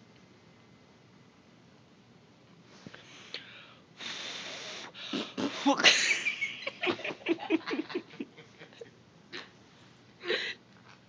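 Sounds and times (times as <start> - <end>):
person giggling: 5.6 - 9.5.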